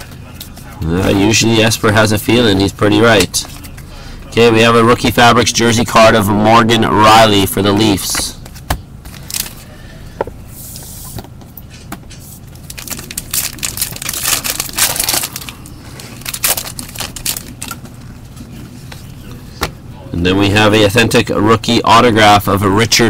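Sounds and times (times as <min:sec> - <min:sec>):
pack wrapper crinkling: 0:09.1 - 0:09.6, 0:12.6 - 0:17.8.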